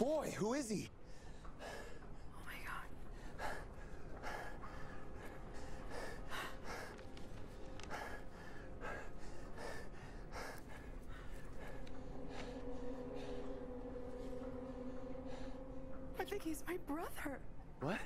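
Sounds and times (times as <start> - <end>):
faint steady hum: 0.0 - 18.0
person breathing hard: 3.1 - 16.1.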